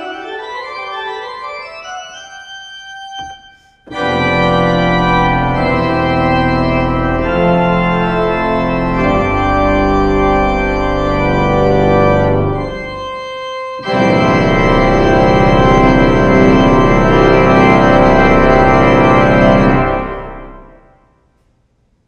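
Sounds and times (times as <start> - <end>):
pipe organ chords: 0.0 - 21.0.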